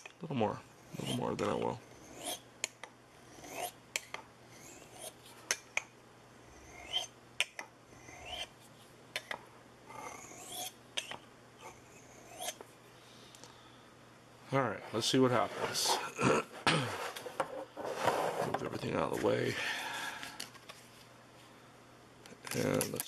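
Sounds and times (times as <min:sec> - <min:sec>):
knife scraping on sharpening stone: 0:00.9 - 0:02.4, 0:03.4 - 0:03.8, 0:04.6 - 0:05.2, 0:06.7 - 0:07.1, 0:08.0 - 0:08.5, 0:10.0 - 0:12.6.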